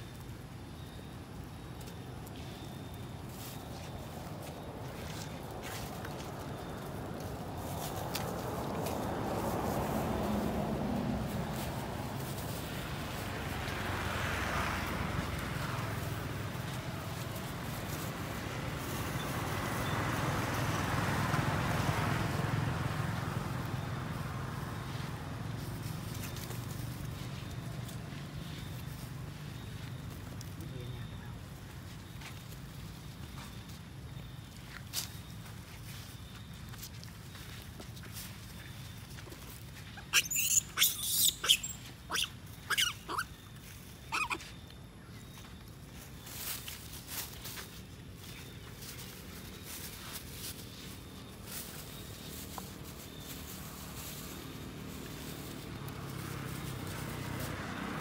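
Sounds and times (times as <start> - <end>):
motor vehicle passing by: 3.3 - 34.1, 37.0 - 58.0
monkey squealing and screaming: 40.0 - 43.4, 44.1 - 44.4.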